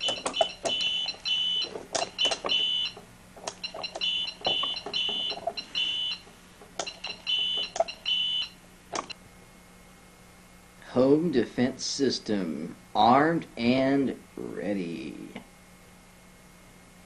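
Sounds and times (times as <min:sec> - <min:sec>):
keypad beeps: 0:00.0 - 0:09.2.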